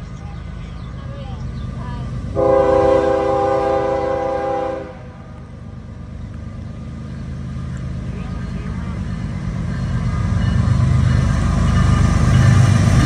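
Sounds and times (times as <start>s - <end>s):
locomotive air horn blast: 2.4s - 5.3s.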